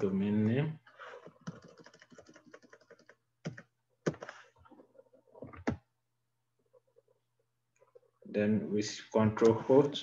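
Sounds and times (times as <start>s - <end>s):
computer keyboard typing: 1.1s - 4.4s
loud keyboard clicks: 1.2s - 4.4s.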